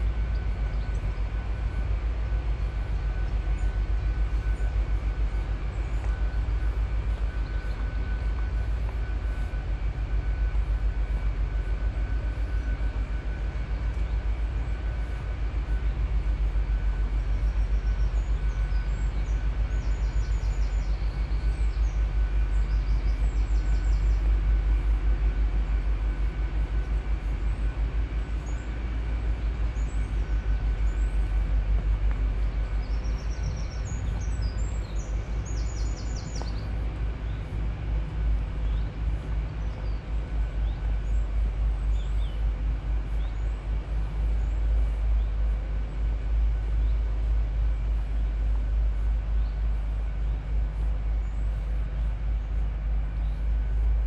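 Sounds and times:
small birds chirping: 0:00.0 - 0:01.8, 0:13.5 - 0:54.0
wind buffeting microphone: 0:00.0 - 0:54.0.

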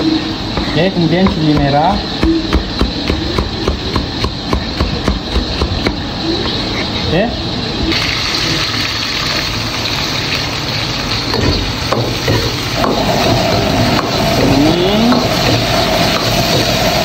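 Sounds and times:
gas burner rushing: 0:00.0 - 0:17.0
steady hum: 0:00.0 - 0:17.0
garlic sizzling in hot oil: 0:07.8 - 0:17.0.

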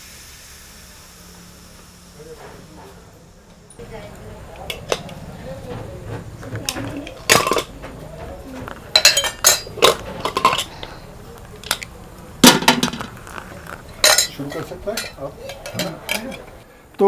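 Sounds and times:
metal ladle clinking on pot: 0:08.9 - 0:10.8, 0:14.0 - 0:16.4.

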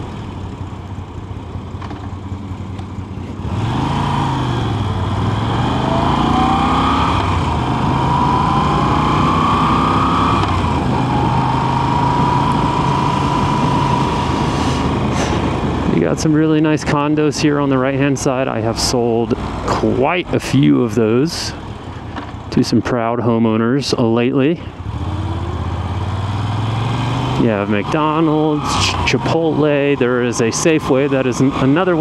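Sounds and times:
motorcycle engine accelerating: 0:00.0 - 0:16.4, 0:24.8 - 0:32.0
road and wind noise: 0:00.0 - 0:32.0.

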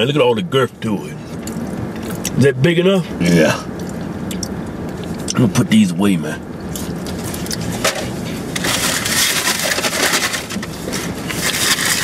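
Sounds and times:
paper bags and wrappers crinkling: 0:07.2 - 0:12.0.

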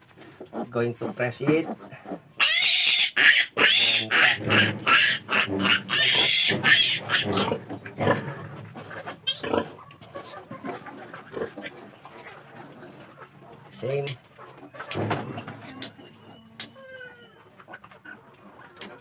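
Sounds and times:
piglet grunting and squeaking: 0:00.2 - 0:19.0
piglet squealing: 0:02.1 - 0:09.8.

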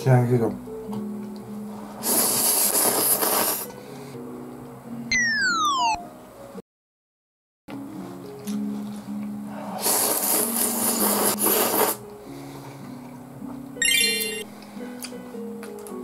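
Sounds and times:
soft background music: 0:00.0 - 0:06.6, 0:07.7 - 0:16.0
noodles slurped loudly: 0:09.8 - 0:12.0.

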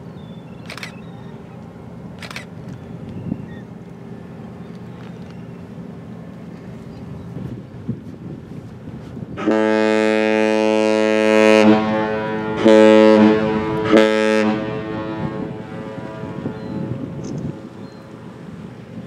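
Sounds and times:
ship horn blasts: 0:09.3 - 0:17.8.

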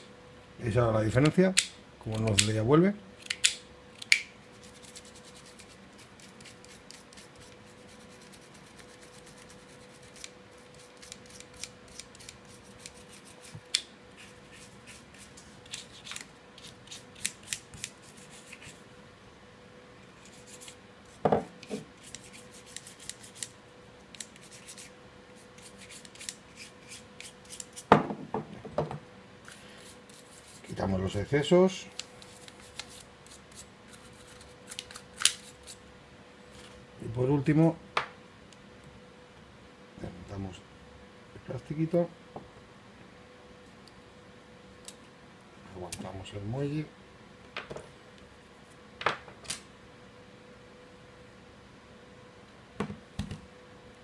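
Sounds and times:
toothbrush scrubbing: 0:04.5 - 0:18.8, 0:22.0 - 0:23.5, 0:24.2 - 0:27.8, 0:29.7 - 0:31.5, 0:32.2 - 0:34.6
knocks on a table: 0:21.2 - 0:21.5, 0:27.9 - 0:29.0, 0:52.8 - 0:53.4.

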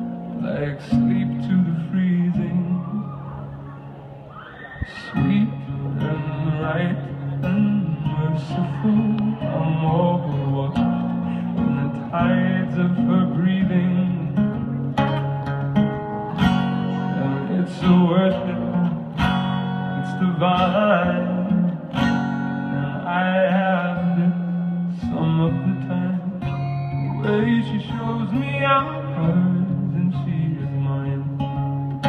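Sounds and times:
acoustic guitar: 0:00.0 - 0:32.0
person singing: 0:04.9 - 0:14.6, 0:16.6 - 0:21.9.

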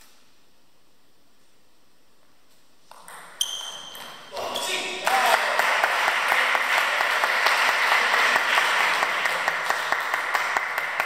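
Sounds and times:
small audience applauding: 0:04.4 - 0:11.0.

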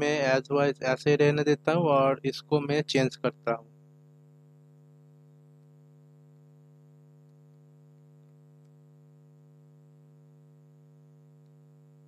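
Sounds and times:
faint electrical hum: 0:00.0 - 0:12.0
faint ticks: 0:05.2 - 0:06.5, 0:07.1 - 0:09.0, 0:11.3 - 0:11.7.

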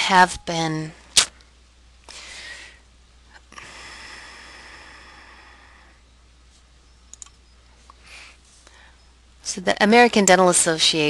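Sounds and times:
breathing close to microphone: 0:02.1 - 0:02.8, 0:03.5 - 0:06.0, 0:08.0 - 0:09.1
faint clicks: 0:07.1 - 0:08.0.

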